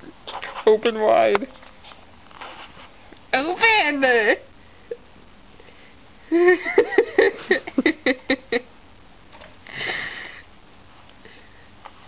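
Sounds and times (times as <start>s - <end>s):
woman giggling: 6.3s - 8.7s.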